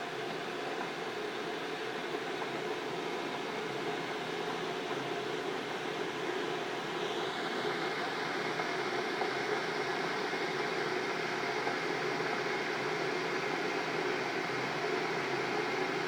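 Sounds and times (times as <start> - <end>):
electric kettle heating water: 0.0 - 16.0.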